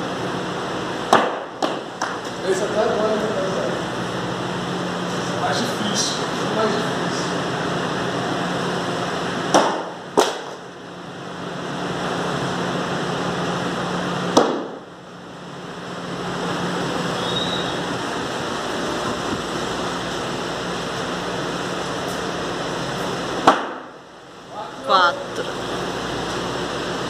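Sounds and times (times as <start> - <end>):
background hum and hiss: 0.0 - 27.0
hatchet knocking wooden plank: 9.6 - 10.4.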